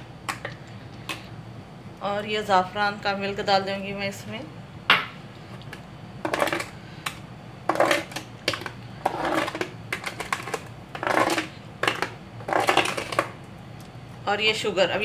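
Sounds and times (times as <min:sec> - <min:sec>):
spoon scraping metal saucepan: 0:07.7 - 0:13.3.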